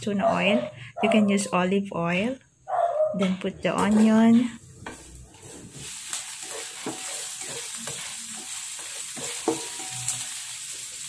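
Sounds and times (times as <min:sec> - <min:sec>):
spatula knocking and scraping pan: 0:03.3 - 0:10.4
onion sizzling in oil: 0:03.8 - 0:11.0.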